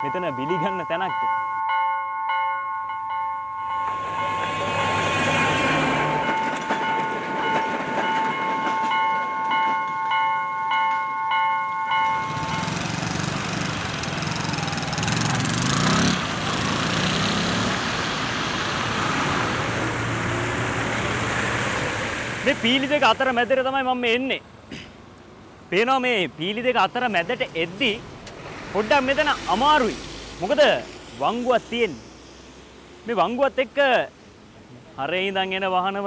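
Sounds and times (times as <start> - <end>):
level-crossing warning bell: 0.0 - 13.2
passing vehicles rumble: 3.5 - 10.0, 11.9 - 36.0.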